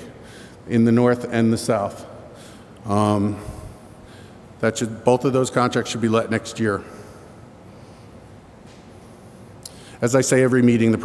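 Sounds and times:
low hum and hiss: 0.0 - 11.0
faint breath: 0.1 - 0.6, 2.4 - 2.8, 3.4 - 4.5, 6.9 - 8.3, 9.0 - 10.0.

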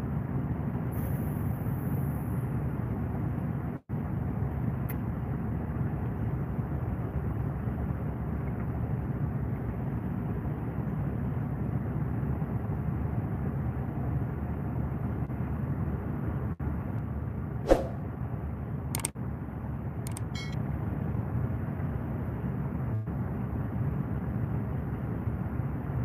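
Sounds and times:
short clicks: 18.9 - 19.1, 20.0 - 20.6.

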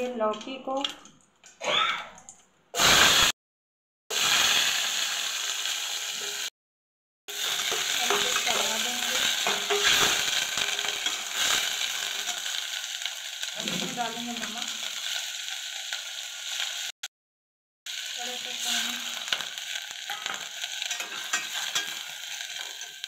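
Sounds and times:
vegetables sizzling in hot oil: 2.8 - 3.4, 4.1 - 6.5, 7.3 - 17.0, 17.9 - 23.0
metal spatula scraping pot: 7.3 - 12.5, 20.1 - 23.0.

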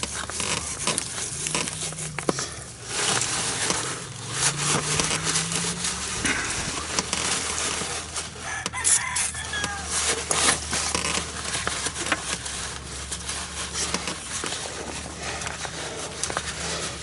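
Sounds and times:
rag rubbing metal: 0.0 - 17.0
steel wool scrubbing rust: 0.0 - 17.0.

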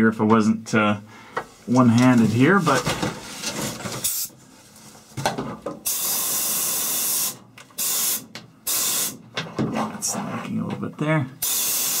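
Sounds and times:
air blow gun hissing: 5.9 - 9.2, 11.4 - 12.0.

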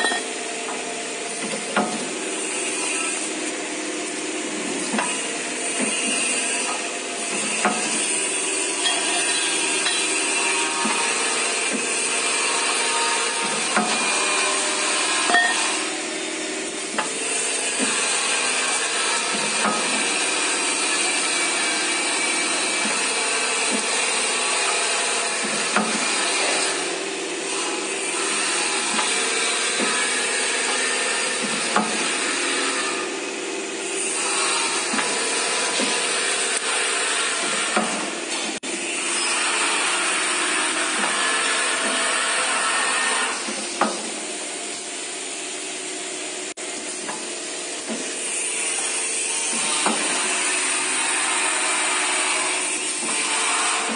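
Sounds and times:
sharp metallic knocks: 8.8 - 11.9.

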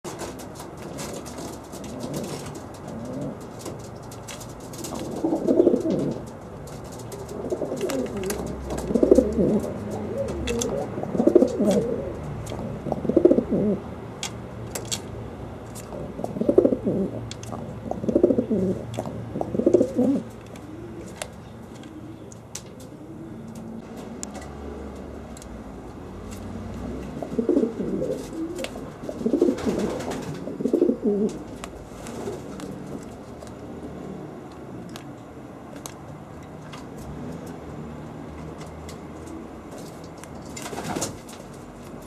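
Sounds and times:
pigeon cooing: 0.2 - 3.7, 4.8 - 6.3, 6.9 - 13.9, 15.8 - 23.8, 27.0 - 31.5.

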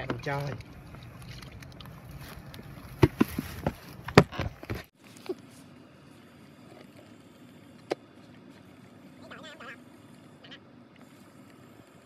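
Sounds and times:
faint outdoor background: 0.0 - 12.0
sharp knocks and thuds: 2.9 - 4.9.

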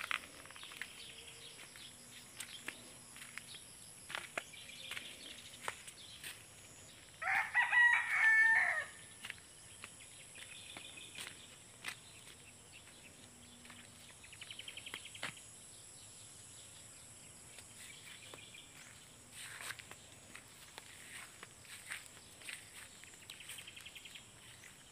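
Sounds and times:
faint chirps and ticks: 0.0 - 7.5, 9.2 - 24.9
rooster crowing: 7.2 - 9.1.

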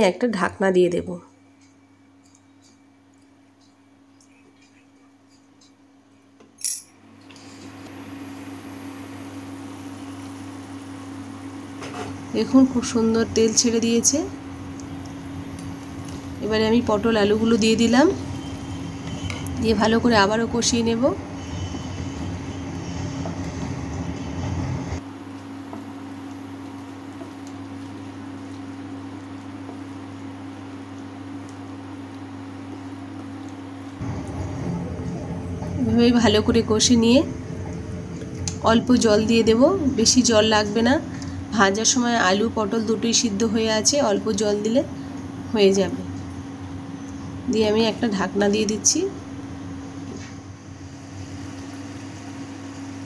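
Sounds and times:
cooktop low hum: 0.0 - 53.0
sharp metallic clink: 6.6 - 7.0
masala sizzling in oil: 7.4 - 34.0, 49.4 - 53.0.

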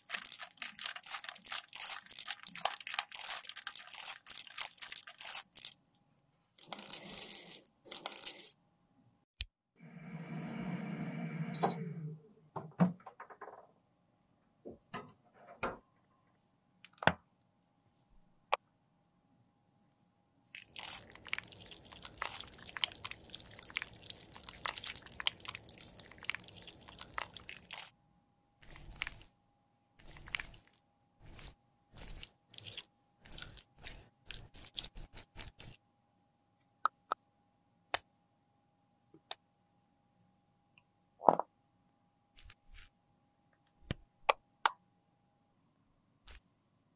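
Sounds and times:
plastic piping bag crinkling: 0.0 - 5.8, 6.6 - 8.6, 20.5 - 27.9, 28.6 - 29.3
squelching and squishing: 0.0 - 5.8, 6.5 - 8.6, 20.5 - 27.9, 28.6 - 29.3, 30.0 - 35.8, 42.4 - 43.0.

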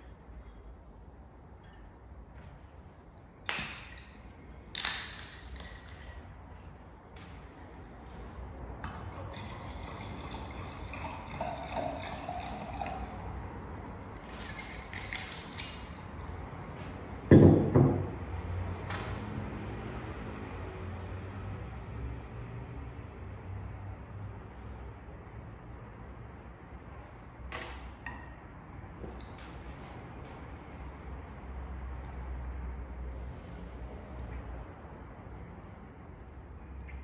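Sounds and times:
wine pouring into glass: 8.8 - 13.2
bottle knocking on wooden table: 17.3 - 18.1.

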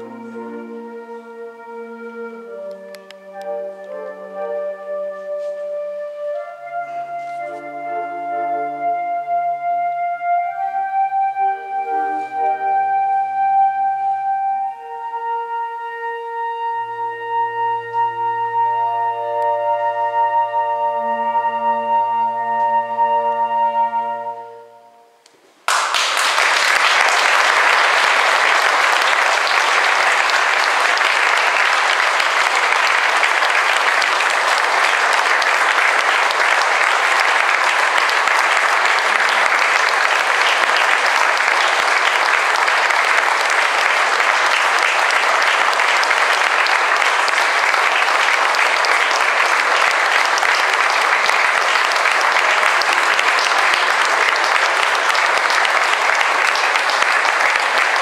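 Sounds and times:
audience applauding: 25.7 - 58.0.

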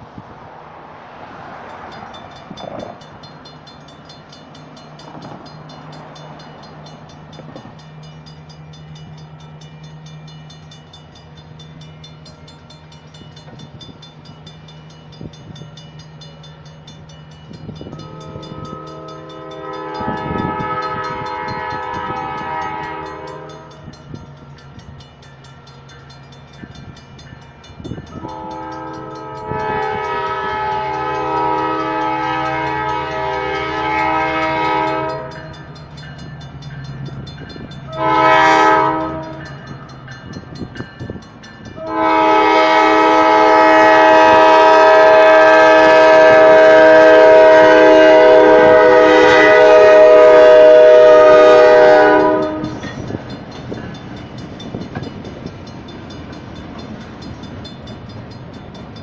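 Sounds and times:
diesel locomotive engine drone: 0.0 - 59.0
railroad crossing bell ringing: 1.2 - 59.0
locomotive horn blast: 17.9 - 23.8, 28.2 - 35.5, 37.9 - 39.6, 41.8 - 52.8.

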